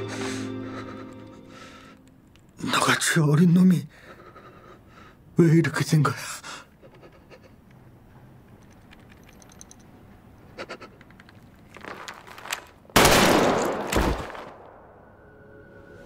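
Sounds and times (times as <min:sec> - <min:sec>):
faint clicks: 0:10.8 - 0:11.8
gunshots: 0:13.0 - 0:14.8.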